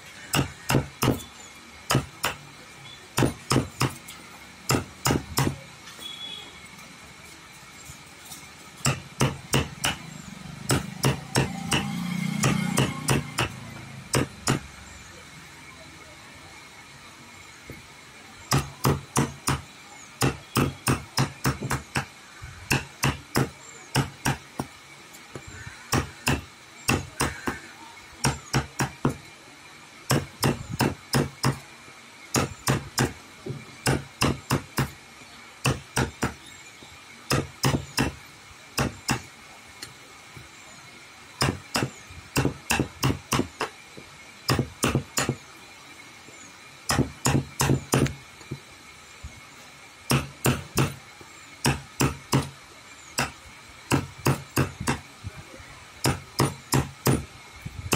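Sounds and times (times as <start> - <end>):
hammer blows: 8.8 - 14.7.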